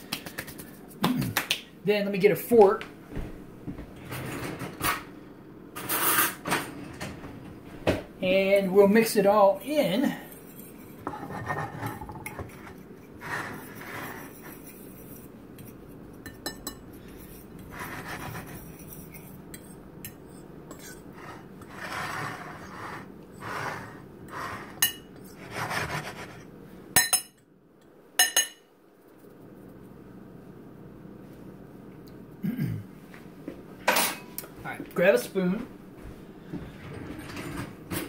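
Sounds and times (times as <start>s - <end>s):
fork scraping in flour: 10.2s - 15.8s, 17.0s - 26.5s.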